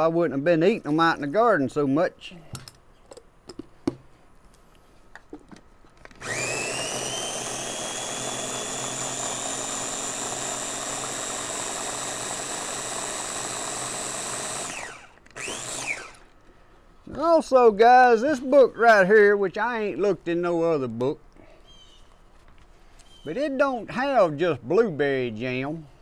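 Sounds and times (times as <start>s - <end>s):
blender motor whining: 6.2s - 16.4s.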